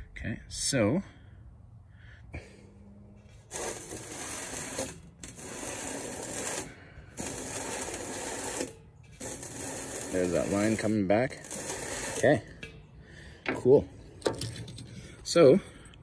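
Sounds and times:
metal scraping against marker: 3.2s - 15.3s.

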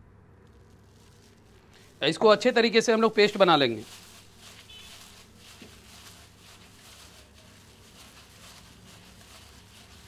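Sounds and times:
wet squishing of kneaded meat: 0.5s - 10.0s.

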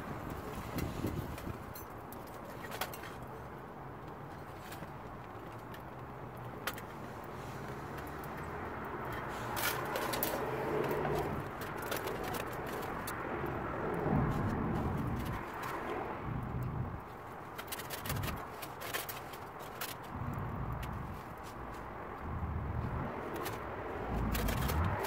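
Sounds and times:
wood fire crackling: 5.8s - 25.0s
steady low rumble: 16.1s - 17.2s, 20.0s - 25.0s
fire popping: 20.1s - 25.0s.

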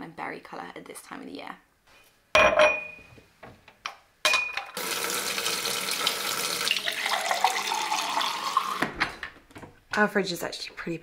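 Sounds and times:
glass clinking on countertop: 2.4s - 3.1s, 4.2s - 4.8s
tap water filling a glass: 4.8s - 9.0s.

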